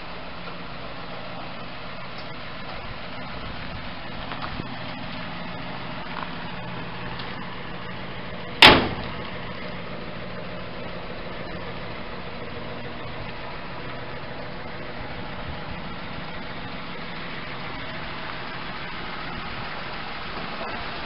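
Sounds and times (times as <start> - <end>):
pickup engine idling: 0.0 - 21.0
sharp bang: 8.6 - 9.2.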